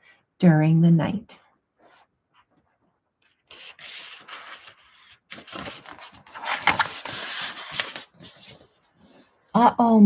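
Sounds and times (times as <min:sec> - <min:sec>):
book page turning: 0:03.2 - 0:09.4.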